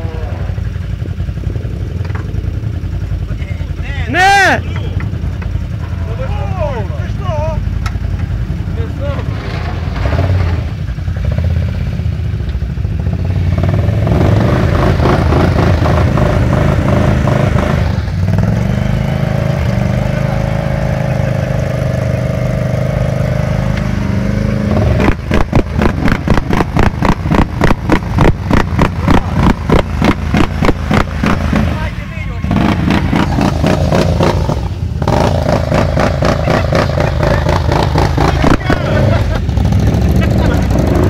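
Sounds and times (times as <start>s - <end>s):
atv engine revving: 0.0s - 41.0s.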